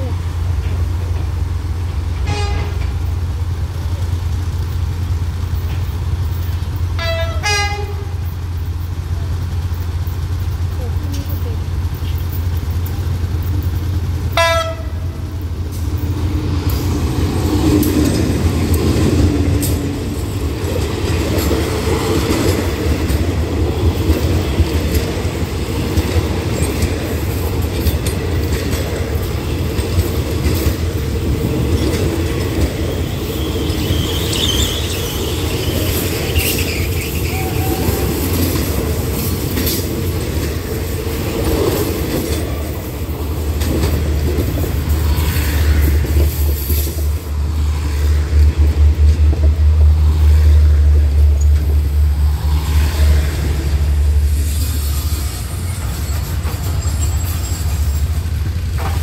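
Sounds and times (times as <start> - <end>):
wheels clicking over rail joints: 0.0 - 52.4, 53.2 - 59.0
train rumbling past: 0.0 - 59.0
locomotive horn toot: 2.2 - 3.0, 7.0 - 8.3, 14.3 - 15.2, 33.0 - 38.2
wheel squeal: 32.8 - 38.3, 54.5 - 58.6.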